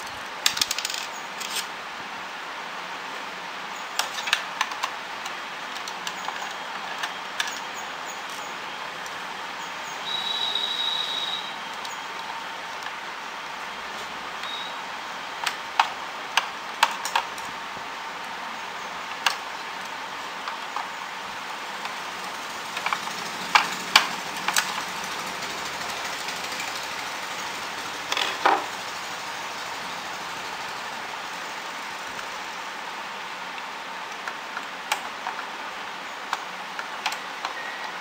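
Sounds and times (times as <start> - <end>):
background hiss: 7.2 - 28.1.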